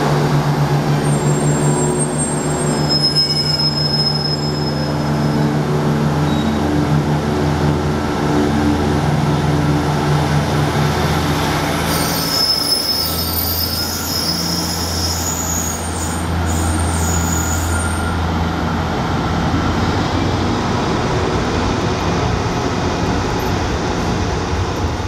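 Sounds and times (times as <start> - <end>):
diesel engine drone: 0.0 - 25.0
train wheels rumbling on rails: 0.0 - 25.0
train wheel squeal: 0.9 - 6.9, 11.4 - 18.8.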